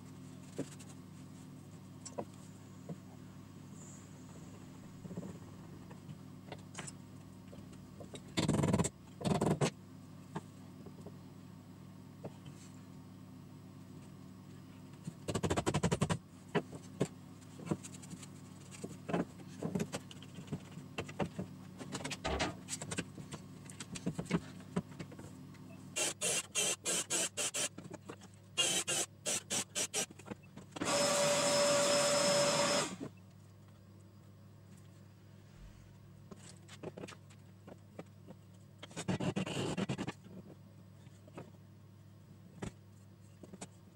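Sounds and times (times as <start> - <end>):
steady low hum: 0.0 - 43.9
cordless drill motor running: 26.0 - 27.7, 28.6 - 30.1, 30.8 - 33.1.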